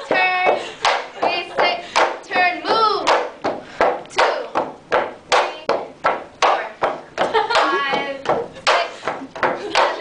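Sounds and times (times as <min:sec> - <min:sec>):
bamboo poles knocking: 0:00.8 - 0:10.0
person laughing: 0:07.2 - 0:08.1.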